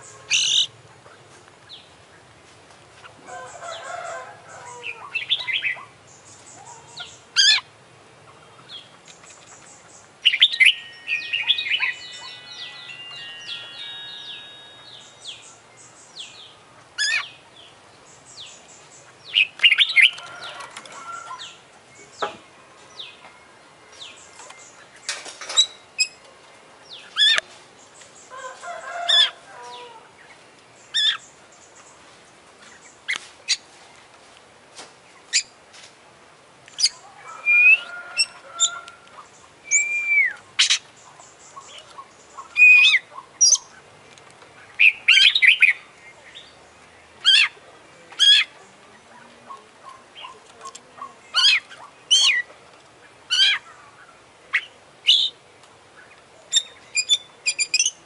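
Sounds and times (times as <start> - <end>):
bird twittering: 8.3 - 16.4, 39.6 - 43.8
bird singing whistles and chips: 39.7 - 40.8.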